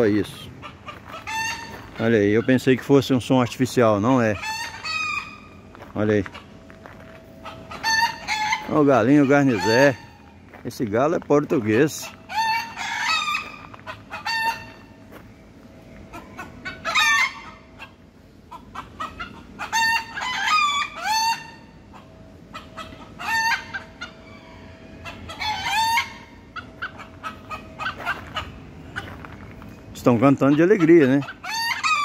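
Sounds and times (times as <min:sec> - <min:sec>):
roosters crowing: 0:00.0 - 0:32.0.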